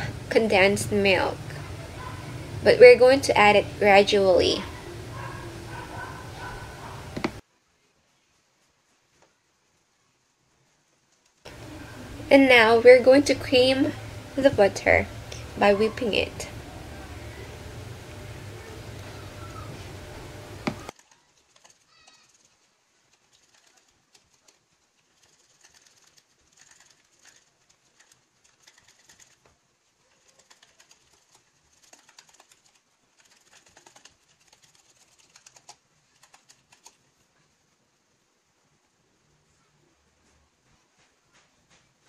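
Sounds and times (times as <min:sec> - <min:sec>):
background noise: 0:00.0 - 0:42.0.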